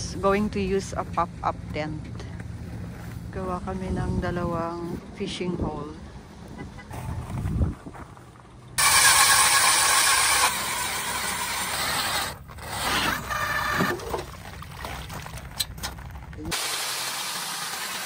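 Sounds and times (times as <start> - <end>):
powered ice auger drilling: 8.8 - 14.2.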